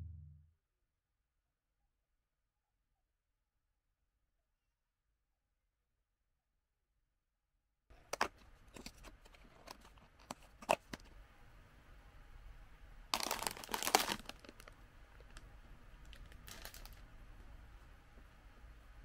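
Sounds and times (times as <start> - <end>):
plastic bag crinkling: 13.2 - 15.4, 16.0 - 17.1.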